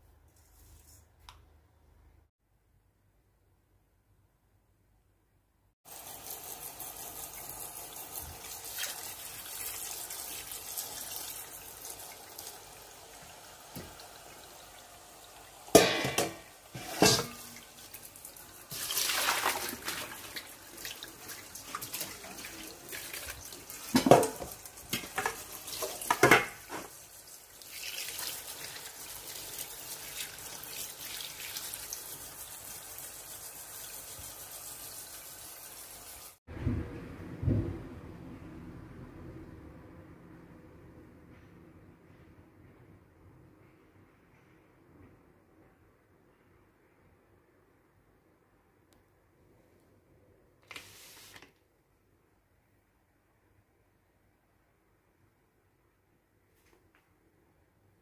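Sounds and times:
splash: 18.7s - 24.5s.

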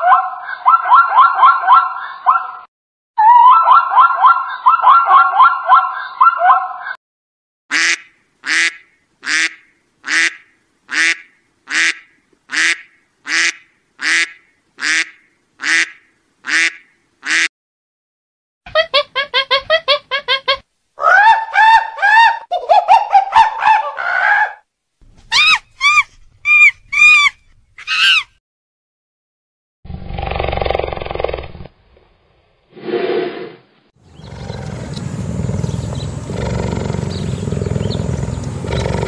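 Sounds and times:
duck quacking: 7.7s - 17.5s
pitched calls: 25.3s - 28.3s, 34.0s - 39.0s
wavering animal calls: 34.0s - 39.0s.

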